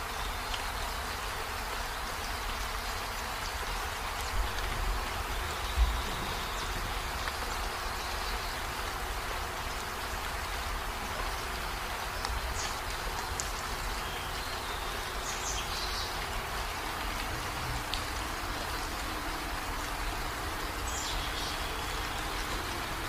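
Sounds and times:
steady rushing noise: 0:04.2 - 0:07.7.

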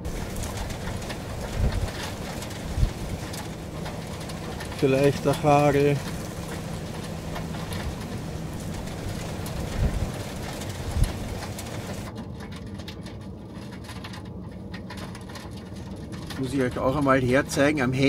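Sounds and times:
engine idling: 0:00.0 - 0:12.1
heavy rain on pavement and vehicles: 0:00.0 - 0:12.1, 0:13.6 - 0:18.0
light rain patter: 0:00.0 - 0:18.0.

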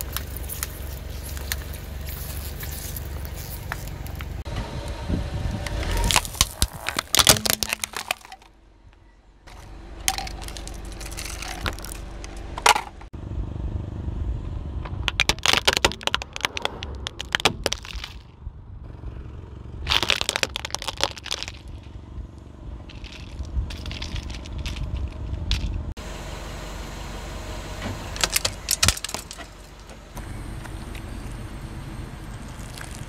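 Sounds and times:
tyre crushing brittle objects: 0:00.0 - 0:04.4, 0:05.8 - 0:08.5, 0:09.5 - 0:12.1, 0:15.0 - 0:18.3, 0:19.9 - 0:21.8, 0:22.9 - 0:25.7, 0:28.2 - 0:29.8
low rumble of car: 0:00.0 - 0:33.0.

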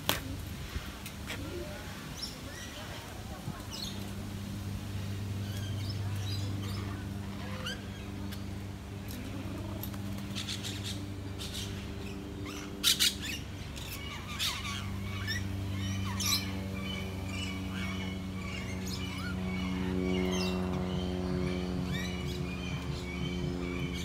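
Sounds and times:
steady low hum: 0:00.0 - 0:24.0
birds chirping and squawking: 0:05.2 - 0:24.0.

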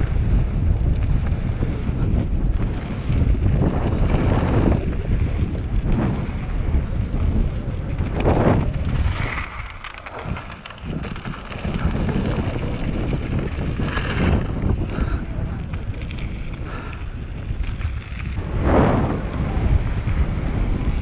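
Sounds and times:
tyres rumbling on gravel: 0:00.0 - 0:21.0
wind buffeting microphone: 0:00.0 - 0:21.0
light ticks and rattles: 0:07.9 - 0:14.0.

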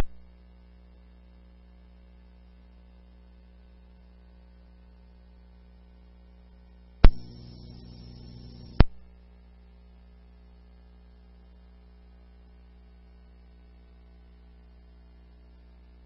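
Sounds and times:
steady low hum: 0:00.0 - 0:16.0
radio carrier hiss: 0:07.0 - 0:09.0
radio transmission click: 0:07.0 - 0:09.0.

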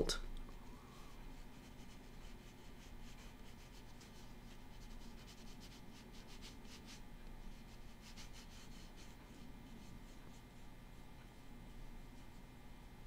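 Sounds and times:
paintbrush brushing on paper: 0:00.6 - 0:12.6.

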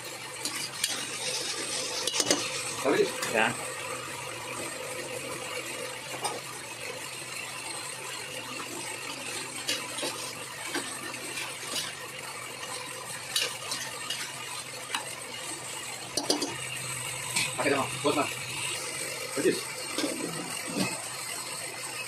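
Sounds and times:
spoon scraping metal pot: 0:00.4 - 0:02.8.

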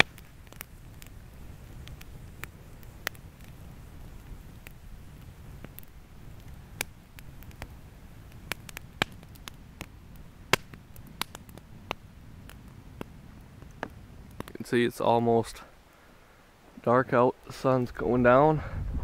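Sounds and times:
campfire pops: 0:00.0 - 0:15.6
low rush of burning: 0:00.0 - 0:19.0.

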